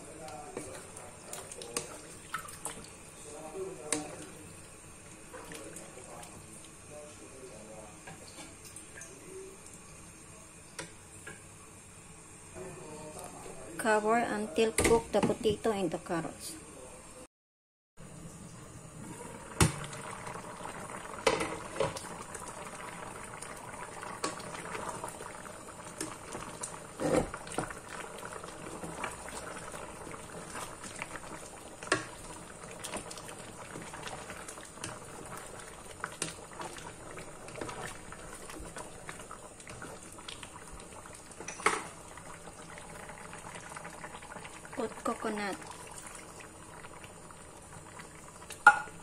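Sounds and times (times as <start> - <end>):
curry bubbling in a pot: 0.0 - 11.5, 18.4 - 49.0
knocks against a pot: 48.6 - 49.0.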